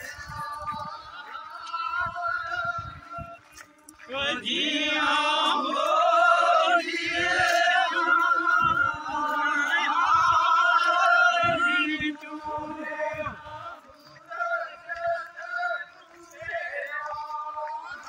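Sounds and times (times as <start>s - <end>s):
men singing a chant: 0.0s - 18.0s.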